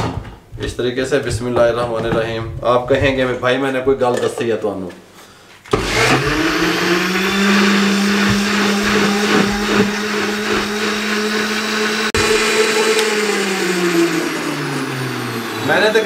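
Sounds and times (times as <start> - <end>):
juicer blender grinding: 5.7 - 16.0.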